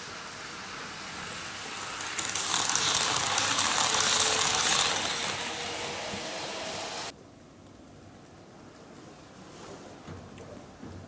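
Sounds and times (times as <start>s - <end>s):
model train rattling on track: 0.0s - 7.1s.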